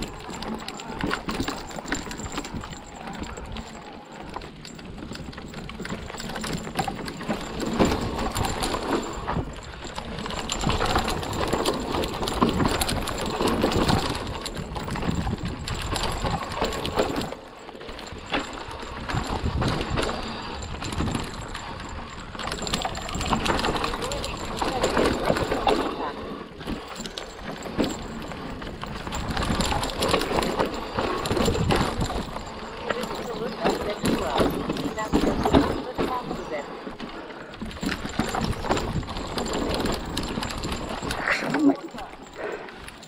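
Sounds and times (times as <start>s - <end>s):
bike clattering over bumps: 0.0s - 43.0s
tyres rolling on dirt: 0.0s - 43.0s
wind rumble on microphone: 9.2s - 17.2s, 28.0s - 32.5s.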